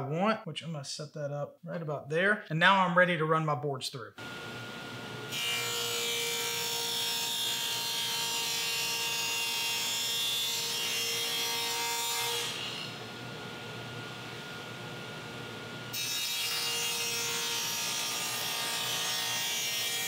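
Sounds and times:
table saw cutting plywood: 0:04.2 - 0:13.1, 0:15.9 - 0:20.0.

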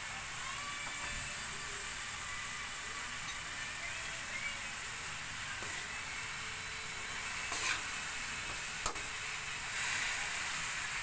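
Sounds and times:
meat sizzling in wok: 0:00.0 - 0:11.0
metal spatula scraping: 0:07.2 - 0:08.6.

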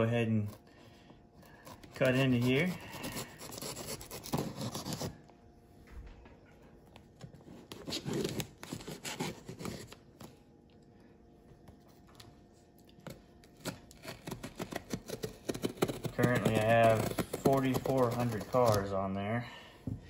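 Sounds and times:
knife slitting cardboard: 0:13.5 - 0:18.9.

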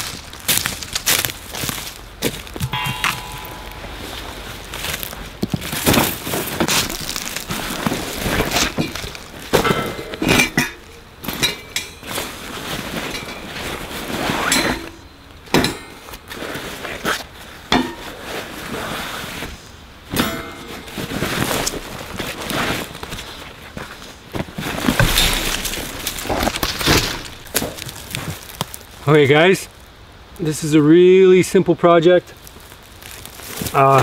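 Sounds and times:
metal gear clinking: 0:25.0 - 0:27.6.

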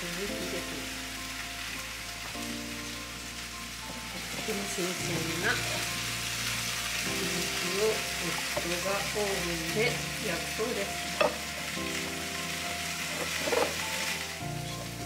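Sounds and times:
food sizzling in a pan: 0:00.0 - 0:15.0.

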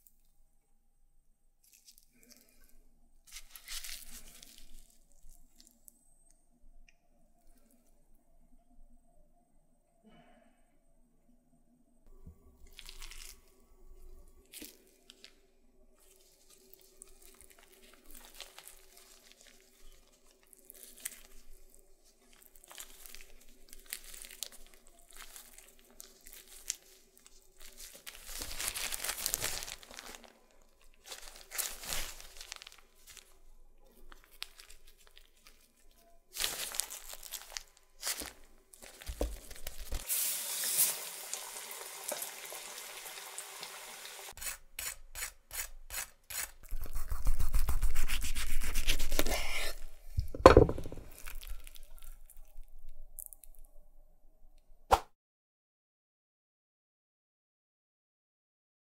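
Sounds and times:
plastic gloves crinkling: 0:01.6 - 0:06.0, 0:12.5 - 0:41.2, 0:44.3 - 0:53.8
wet squishing of meat filling: 0:12.7 - 0:13.6, 0:16.0 - 0:40.1, 0:51.1 - 0:53.6
sizzling in hot oil: 0:40.0 - 0:44.6.

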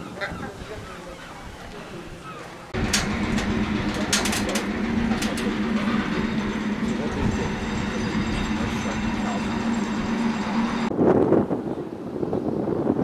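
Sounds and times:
locomotive engine idling: 0:02.7 - 0:10.9.

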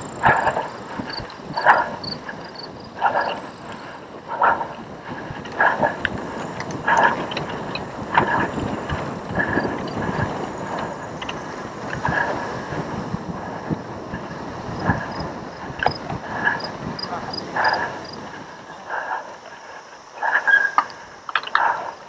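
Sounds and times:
bike rumble and rattle: 0:00.0 - 0:22.0
wind on microphone: 0:00.0 - 0:22.0.

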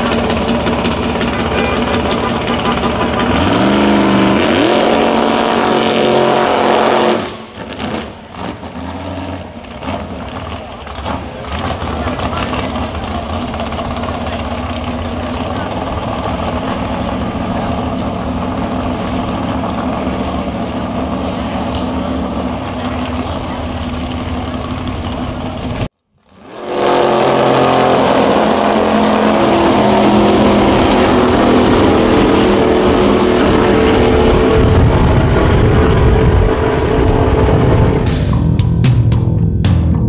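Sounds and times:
drag car engine idling: 0:00.0 - 0:04.4, 0:09.3 - 0:25.9
drag car engine at full throttle: 0:00.0 - 0:40.0.

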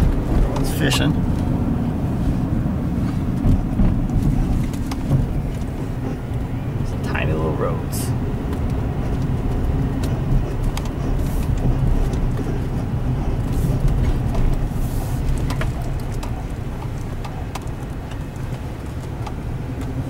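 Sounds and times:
engine and tyre hum: 0:00.0 - 0:20.0.

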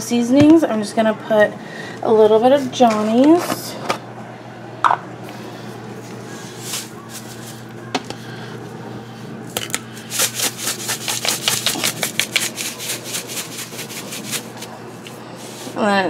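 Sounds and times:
salt shaker rattling: 0:09.6 - 0:14.6.

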